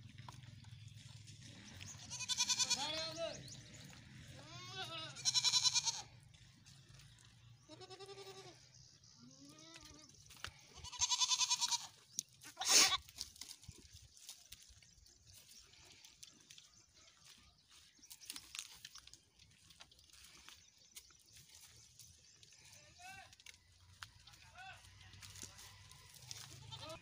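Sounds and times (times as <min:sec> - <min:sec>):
goats bleating: 0:01.7 - 0:03.4, 0:04.2 - 0:06.2, 0:07.6 - 0:08.7, 0:10.7 - 0:13.1, 0:24.8 - 0:27.0.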